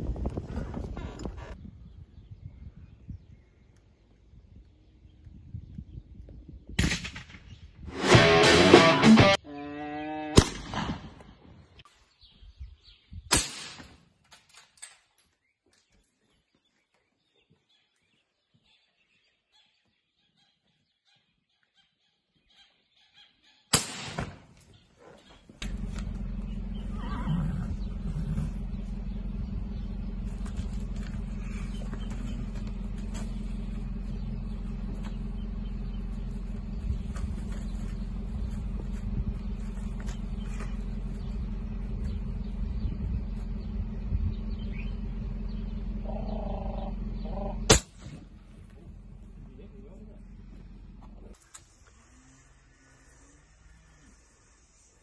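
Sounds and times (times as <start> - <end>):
steady low rumble: 0.0 - 8.6, 25.5 - 51.4
rifle shots: 10.4 - 11.3, 23.7 - 24.5, 47.7 - 48.2.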